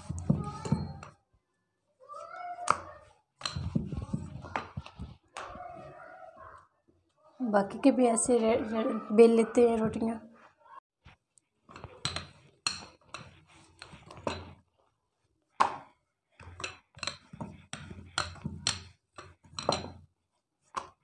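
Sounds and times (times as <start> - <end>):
rolling pin rolling dough on board: 0.0 - 1.2, 2.5 - 6.6, 9.8 - 21.0.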